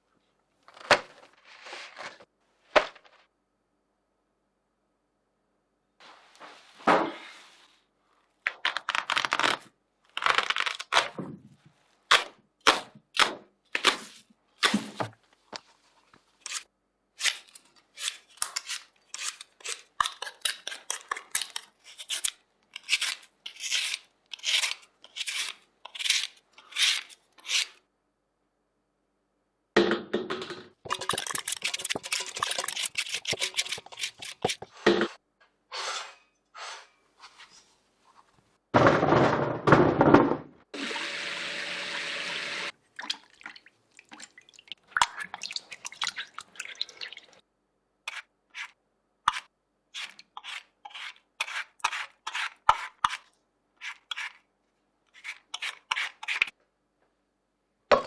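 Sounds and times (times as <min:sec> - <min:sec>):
peeler scraping potatoes: 0:17.2 - 0:27.8, 0:30.9 - 0:34.7, 0:48.1 - 0:54.4, 0:55.1 - 0:56.5.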